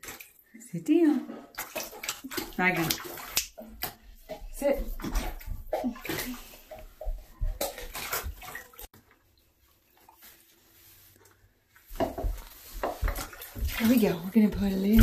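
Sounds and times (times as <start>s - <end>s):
dog paws scrabbling in bathtub: 0.0s - 15.0s.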